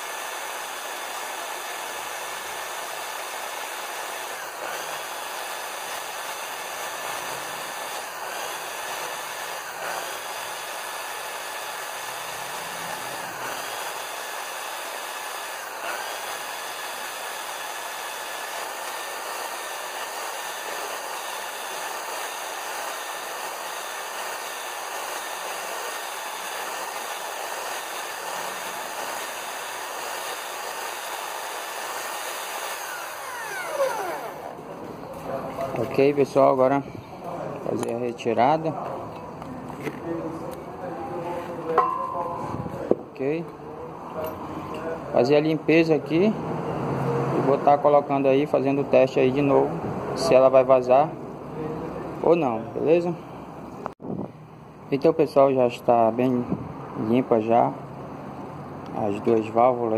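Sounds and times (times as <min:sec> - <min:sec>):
electric drill grinding valve: 0:00.0 - 0:34.7.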